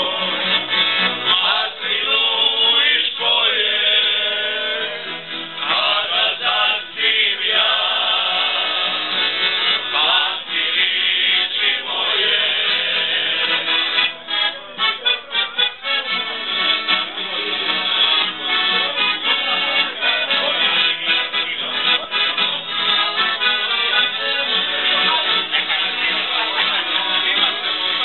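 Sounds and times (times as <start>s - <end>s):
men singing a folk song: 0.0s - 14.1s
accordion: 0.0s - 28.0s.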